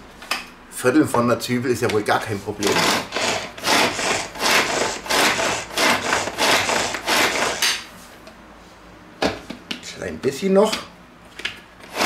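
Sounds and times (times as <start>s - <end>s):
pull-cord food chopper: 2.6s - 7.8s.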